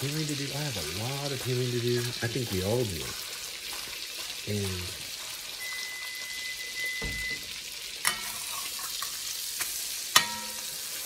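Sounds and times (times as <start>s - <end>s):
steaks sizzling in oil: 0.0s - 11.0s
metal spatula scraping meat: 1.2s - 4.4s, 5.0s - 6.2s, 8.0s - 11.0s
spatula clanking against pan: 8.0s - 9.2s, 10.1s - 10.8s.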